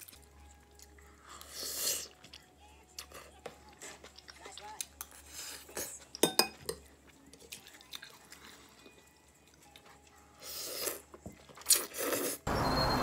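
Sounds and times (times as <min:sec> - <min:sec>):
soft chewing: 0:00.0 - 0:12.4.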